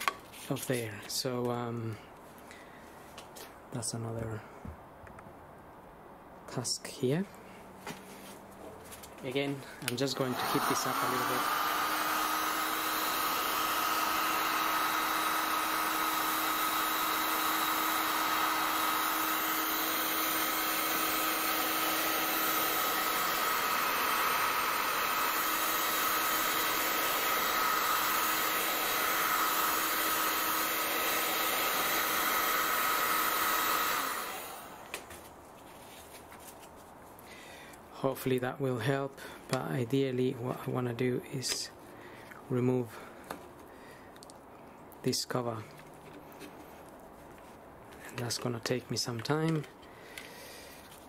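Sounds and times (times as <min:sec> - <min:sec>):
heat gun running: 0:09.9 - 0:35.1.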